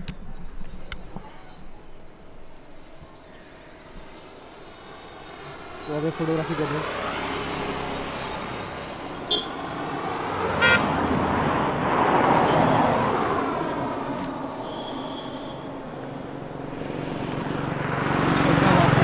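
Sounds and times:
vehicle passing: 4.2 - 19.0.

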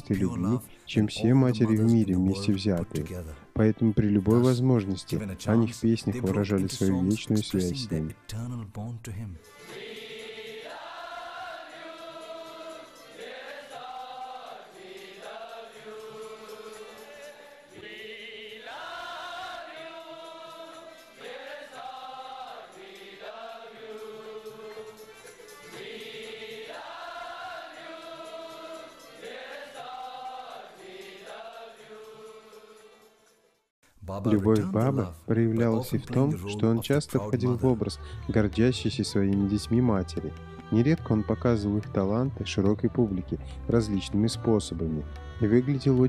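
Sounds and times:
group singing devotional song: 9.5 - 33.4.

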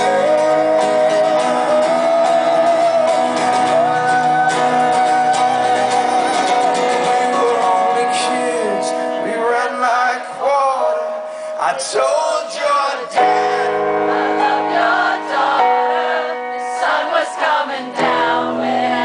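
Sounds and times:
man singing: 0.0 - 4.1, 6.8 - 13.8
acoustic guitar chords: 0.0 - 19.0.

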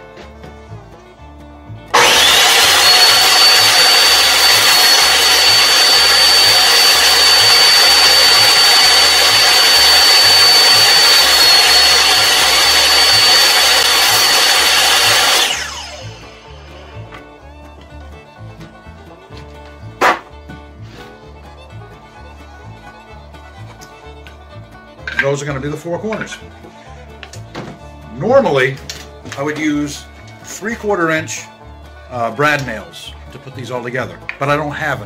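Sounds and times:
table saw motor whine: 1.9 - 32.8
saw cutting wood: 1.9 - 34.7.

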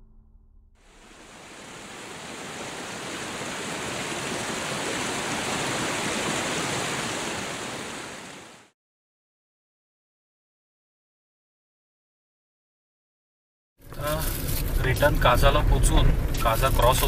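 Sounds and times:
river water rushing over rocks: 0.9 - 8.7.

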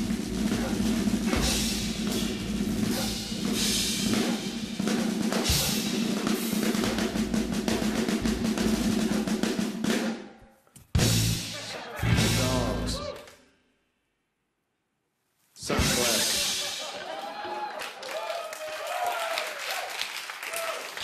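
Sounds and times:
drum kit playing fast: 0.0 - 10.2, 11.0 - 13.0, 15.6 - 17.4.

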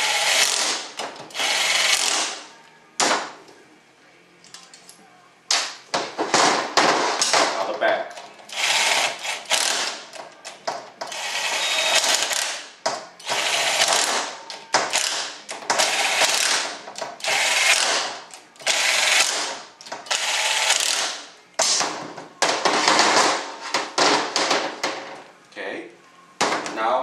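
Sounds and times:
cordless drill running: 0.0 - 0.6, 1.3 - 2.2, 8.5 - 9.8, 11.1 - 12.6, 13.3 - 14.1, 17.2 - 18.0, 18.6 - 19.4, 20.1 - 21.0.

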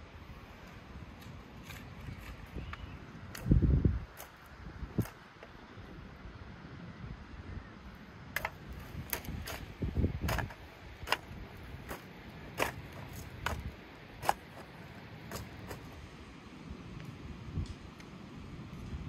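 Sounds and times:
hoe chopping dry soil: 8.4 - 16.0.

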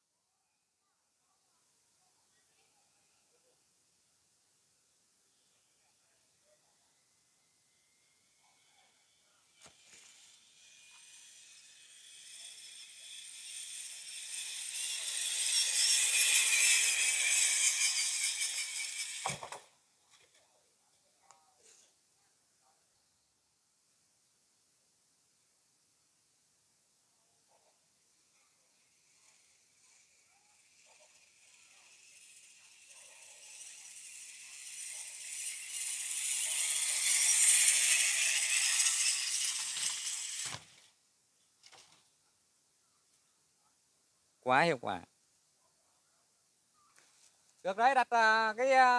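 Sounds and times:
pulley trolley whirring on cable: 9.7 - 20.4, 28.8 - 41.0.

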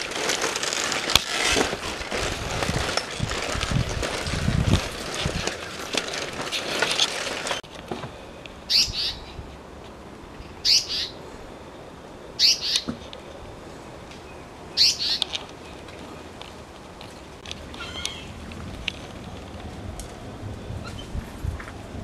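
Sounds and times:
rustling handling noise: 0.0 - 8.2, 15.2 - 20.2
high chirping animal calls: 8.7 - 9.4, 10.6 - 11.2, 12.4 - 12.9, 14.3 - 15.3, 17.7 - 18.4.

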